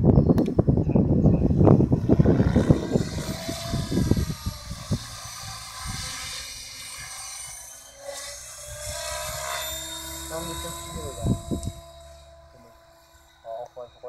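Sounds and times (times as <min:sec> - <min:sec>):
microphone rumble: 0:00.0 - 0:05.1
model helicopter rotor whine: 0:00.1 - 0:14.0.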